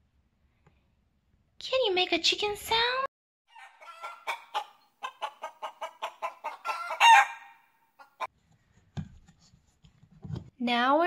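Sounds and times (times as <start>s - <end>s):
chicken cackle: 3.5s - 8.3s
chicken clucking: 3.5s - 8.3s.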